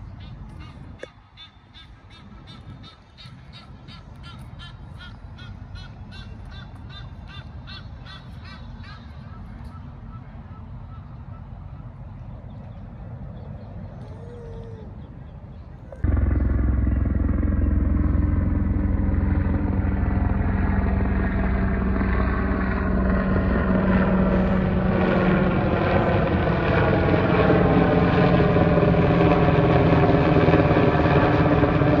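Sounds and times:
helicopter flying overhead: 0:00.0 - 0:32.0.

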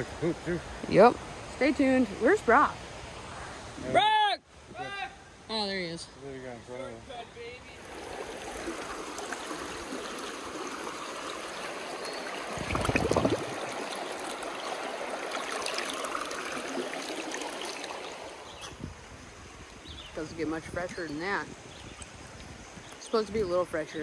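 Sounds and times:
water rushing over rocks: 0:07.8 - 0:19.9
bottle splashing into water: 0:12.4 - 0:18.2.

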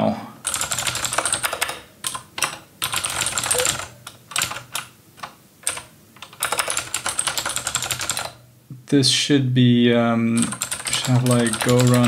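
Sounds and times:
keyboard typing: 0:00.4 - 0:08.4, 0:10.4 - 0:12.0.

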